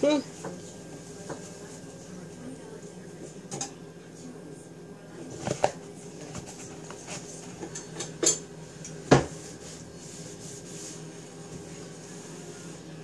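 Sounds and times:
handling rubbing and scraping: 0:09.2 - 0:12.8.

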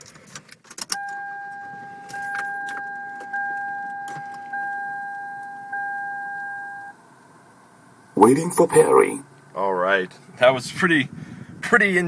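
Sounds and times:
car warning chime: 0:00.9 - 0:07.0.

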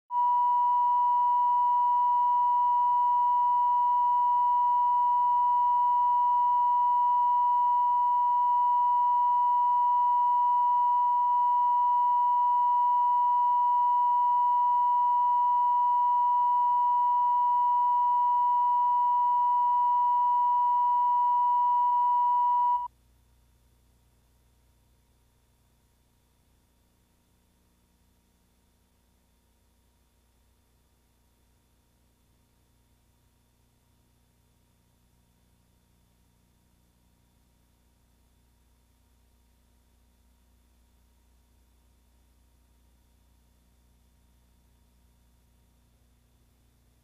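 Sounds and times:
steady test tone: 0:00.1 - 0:22.9.

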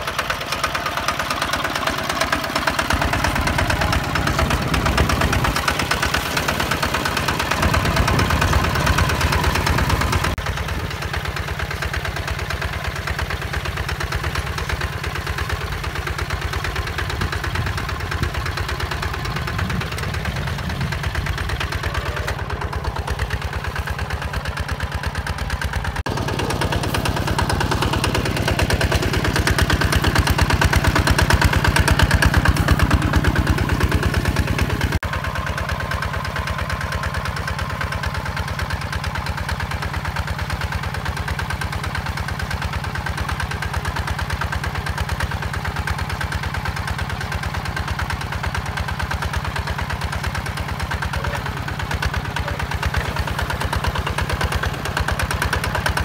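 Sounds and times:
diesel tractor engine chugging: 0:00.0 - 0:56.0
tiller pulling through dry soil: 0:00.0 - 0:56.0.

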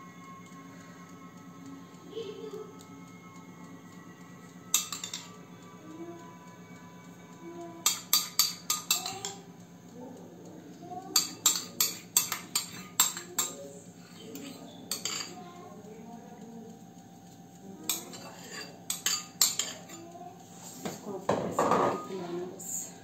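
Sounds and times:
spoon scraping ceramic bowl: 0:14.0 - 0:15.3.

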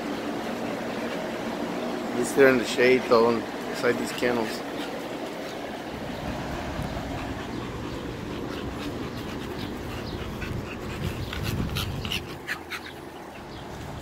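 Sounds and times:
dog panting: 0:00.0 - 0:14.0
steady low rumble: 0:04.6 - 0:12.5.

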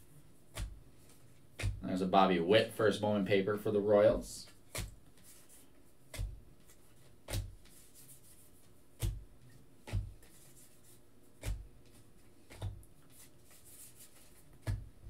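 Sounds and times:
cards clicking while flipped: 0:04.7 - 0:08.3.

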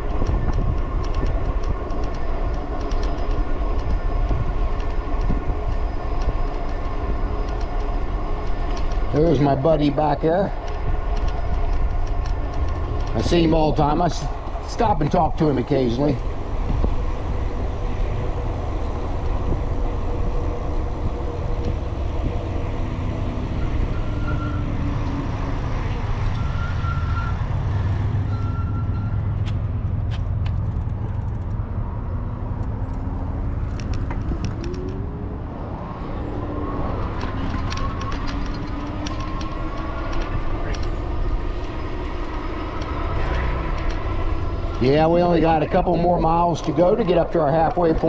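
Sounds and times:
tyre noise on pavement: 0:00.0 - 0:48.0
wind rumbling on microphone: 0:00.0 - 0:48.0.

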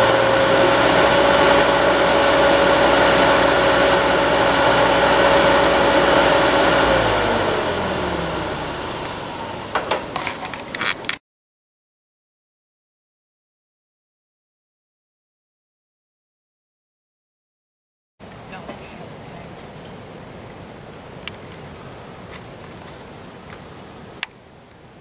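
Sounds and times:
tractor engine running: 0:00.0 - 0:11.2.

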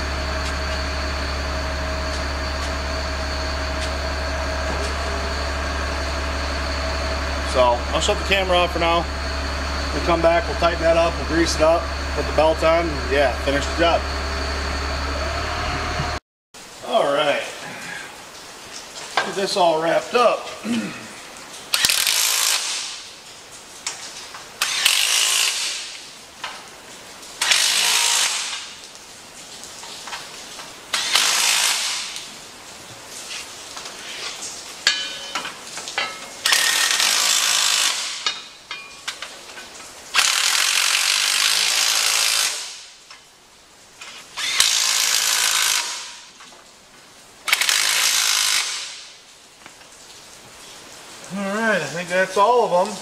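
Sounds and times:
power ratchet whirring: 0:21.7 - 0:22.8, 0:24.6 - 0:25.9, 0:27.4 - 0:28.6, 0:30.9 - 0:32.2, 0:36.4 - 0:38.4, 0:40.1 - 0:42.8, 0:44.4 - 0:46.2, 0:47.5 - 0:49.0.

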